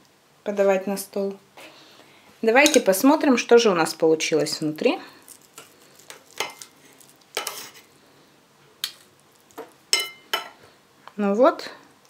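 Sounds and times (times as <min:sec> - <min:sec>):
cutlery clinking and scraping plate: 0:06.4 - 0:06.7, 0:07.4 - 0:07.9, 0:09.6 - 0:10.6.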